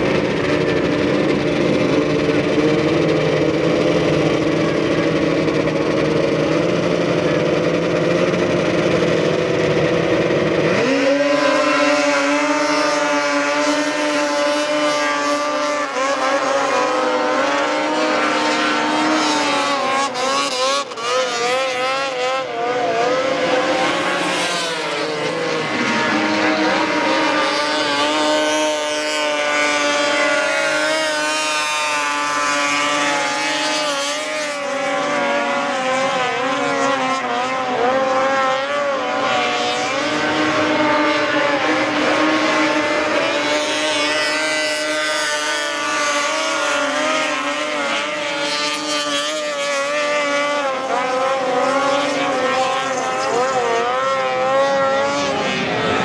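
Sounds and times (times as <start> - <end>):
low steady engine note: 0.0 - 11.2
snowmobile engines at high revs: 0.0 - 56.0.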